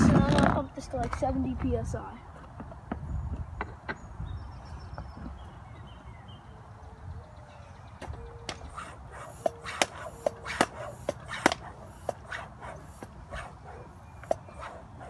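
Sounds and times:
sharp clicks and short squeaks: 0:08.0 - 0:15.0.

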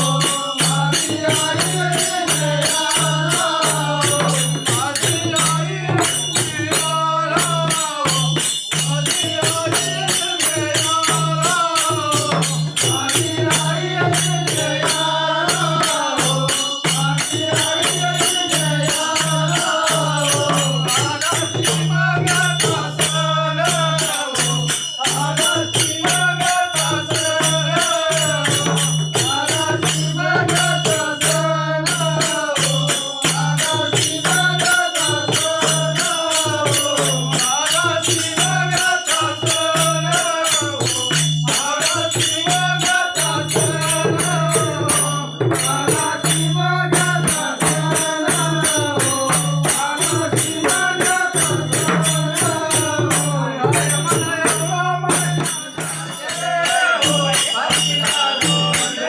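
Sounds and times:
hand cymbals clashing: 0:00.0 - 0:59.0
men singing together: 0:00.0 - 0:59.0
barrel drum beat: 0:42.0 - 0:58.9.

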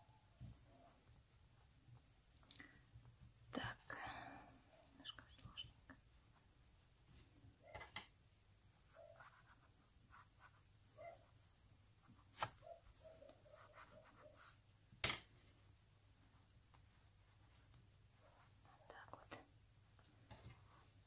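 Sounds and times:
yarn rubbing and scratching: 0:08.7 - 0:14.7.

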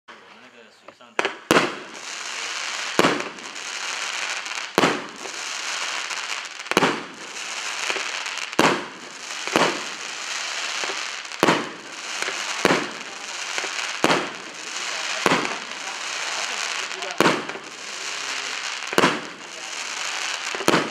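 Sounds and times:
fireworks bangs: 0:00.1 - 0:20.9
fireworks hiss: 0:00.1 - 0:20.9.

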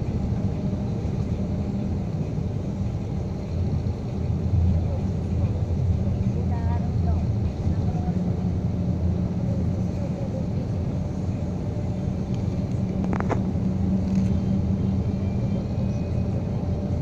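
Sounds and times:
car engine and tyre drone: 0:10.7 - 0:17.0.

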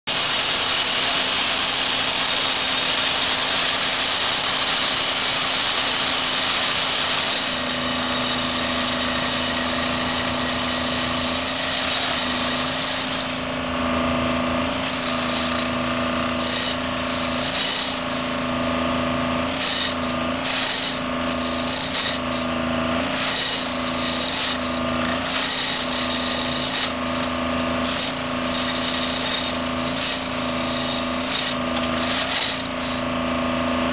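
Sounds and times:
machine engine and hydraulics running: 0:00.1 - 0:33.9
tamping tines pulsing into ballast: 0:00.2 - 0:33.9.

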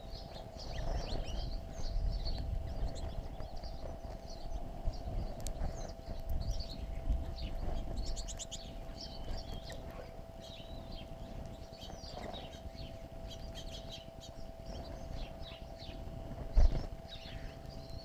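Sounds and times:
faint steady hum: 0:00.0 - 0:18.0
songbirds chirping: 0:00.0 - 0:18.0.

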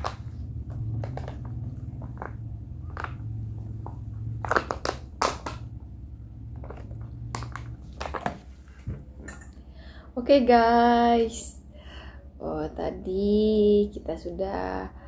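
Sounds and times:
plastic cup crinkling and clicking: 0:00.0 - 0:05.7, 0:06.6 - 0:08.4
steady low hum: 0:00.0 - 0:15.0.

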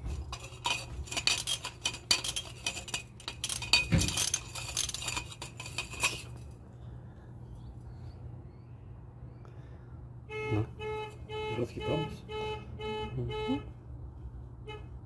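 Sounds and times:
metallic clinks: 0:00.0 - 0:06.6.

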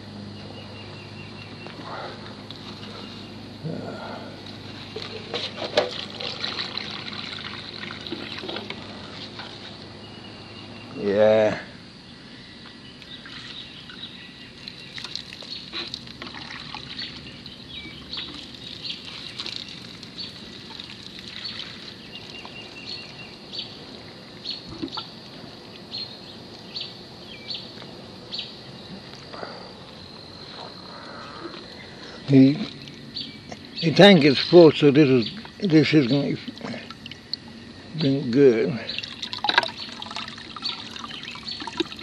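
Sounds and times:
birds chirping: 0:00.0 - 0:42.0
high insect drone: 0:00.0 - 0:42.0
water splashing onto plants: 0:04.9 - 0:09.0, 0:14.6 - 0:23.4, 0:38.9 - 0:42.0.

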